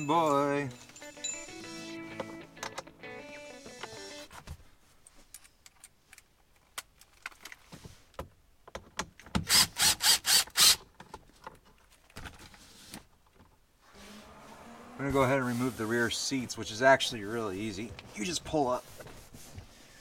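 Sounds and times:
impact driver bursts: 9.4s - 10.8s.

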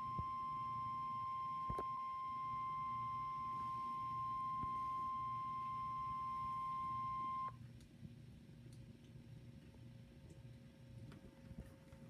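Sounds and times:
weather radio alarm tone: 0.0s - 7.5s
faint radio hiss: 0.0s - 12.0s.

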